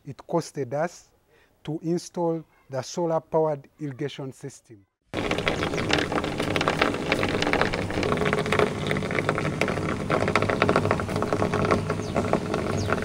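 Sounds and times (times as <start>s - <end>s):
water gushing from a pipe: 5.2s - 13.0s.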